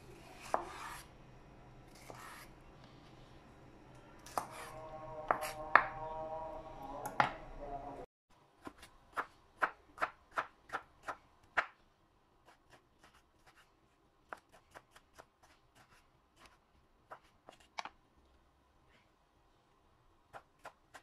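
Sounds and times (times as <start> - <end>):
knife chopping on wooden board: 0.4 - 1.0, 4.3 - 4.7.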